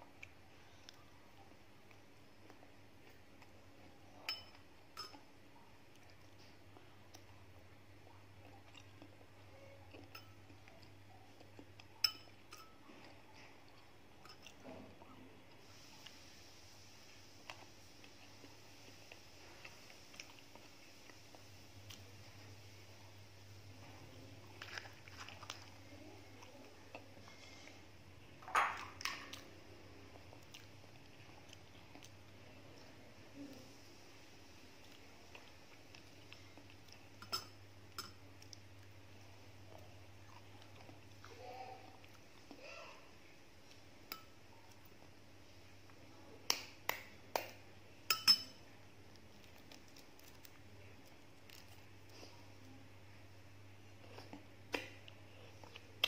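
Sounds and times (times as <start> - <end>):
eggshell and leaves crackling: 49.0 - 52.2.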